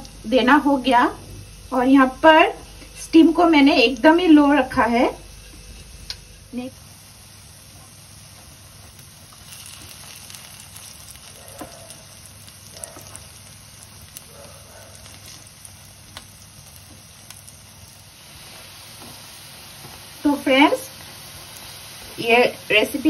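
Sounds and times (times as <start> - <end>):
food sizzling in hot oil: 0.0 - 23.0.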